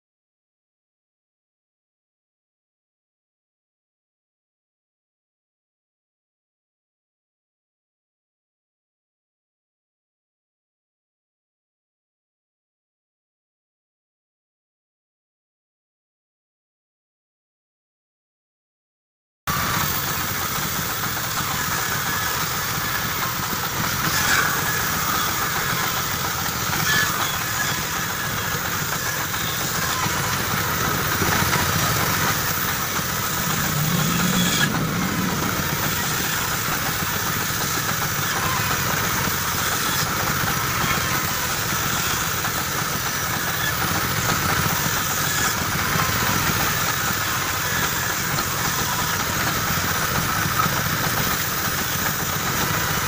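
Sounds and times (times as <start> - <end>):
band saw cutting wood: 19.5 - 53.0.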